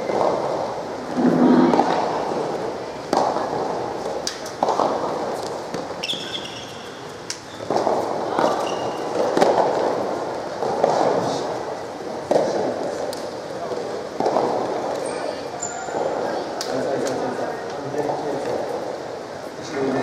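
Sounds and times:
racket hitting soft ball: 0.1 - 6.5, 7.6 - 15.1
short high squeaks: 6.0 - 7.7.

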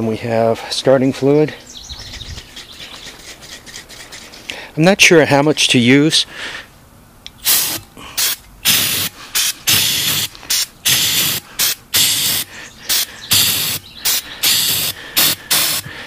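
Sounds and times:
aerosol can spraying bursts: 7.4 - 15.9.

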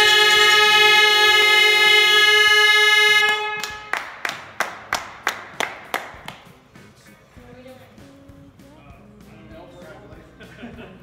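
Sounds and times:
horn-like blast: 0.0 - 4.1
rhythmic hand clapping: 3.2 - 7.1.

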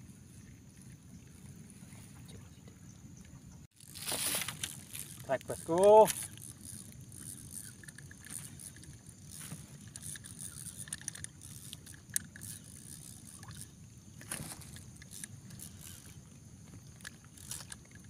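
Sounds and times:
fish splashing: 3.8 - 13.7
fishing reel clicks: 3.8 - 16.2, 17.0 - 18.0.

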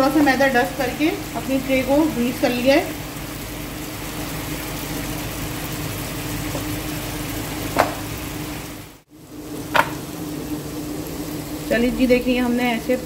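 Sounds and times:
knocks on counter: 7.8 - 8.1, 9.8 - 10.0.

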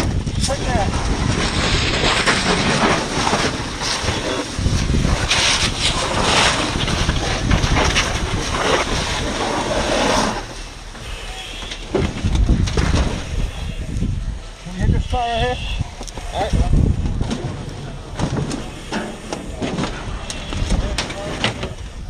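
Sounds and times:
fire hose spraying water: 0.0 - 15.0.

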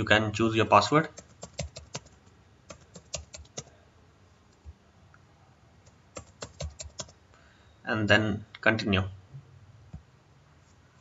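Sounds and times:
computer keyboard key clicks: 1.2 - 3.7, 6.2 - 7.1.

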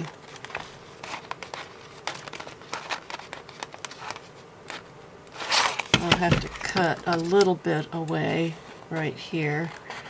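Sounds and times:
paper rustling and crinkling: 0.0 - 7.5.

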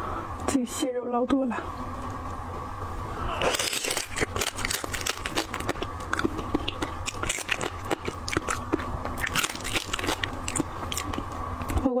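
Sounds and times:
crab shell cracking and crunching: 3.3 - 11.8.

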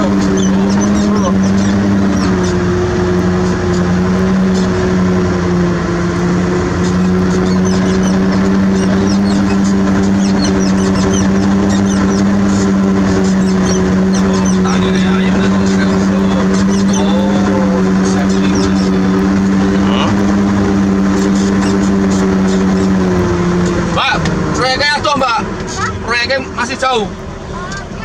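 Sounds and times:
diesel engine running: 0.0 - 28.0
high chirps: 6.8 - 20.2.

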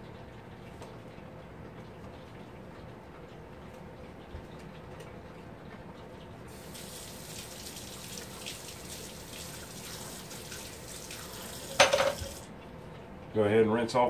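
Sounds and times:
tap water running into sink: 6.5 - 12.5.

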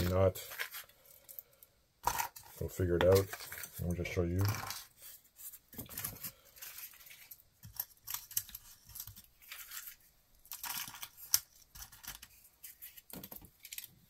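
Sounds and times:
packaging rustling and crinkling: 2.2 - 14.0.

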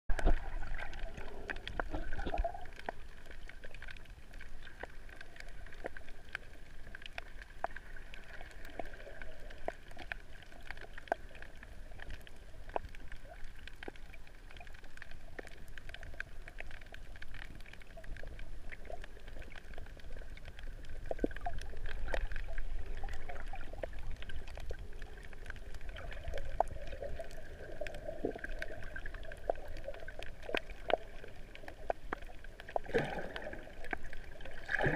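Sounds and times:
muffled underwater rumble: 0.1 - 34.9
sharp clicks and crackles: 0.1 - 34.9.

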